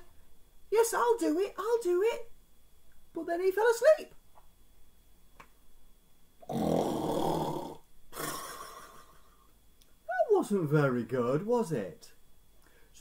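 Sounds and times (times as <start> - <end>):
man imitating snoring: 6.4 - 9.1.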